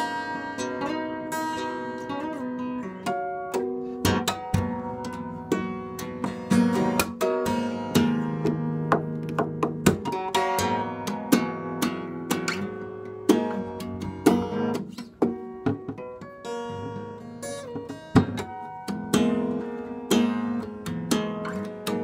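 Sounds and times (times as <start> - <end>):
acoustic guitar strumming and picking: 0.0 - 22.0.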